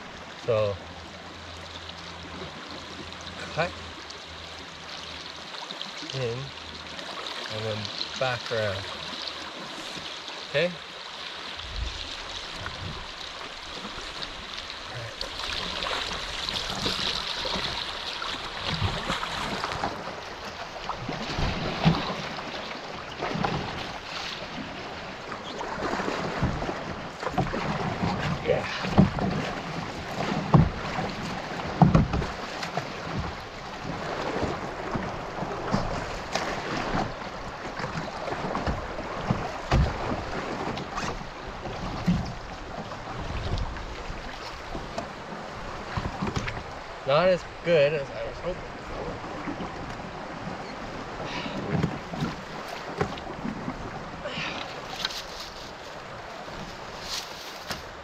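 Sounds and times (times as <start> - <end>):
paddle splashes: 0.0 - 58.0
river water rushing: 0.0 - 58.0
paddle knocks on canoe: 25.8 - 46.7, 51.3 - 55.5.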